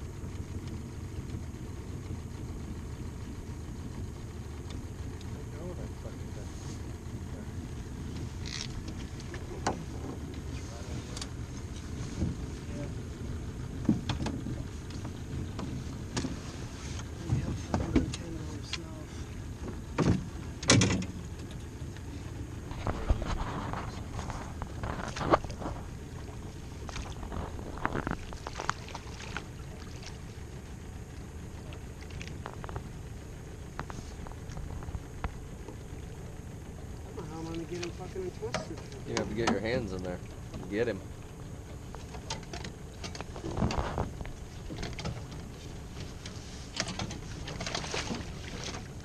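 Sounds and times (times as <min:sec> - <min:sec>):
low steady rumble: 0:00.0 - 0:49.0
short water splash: 0:26.6 - 0:30.4.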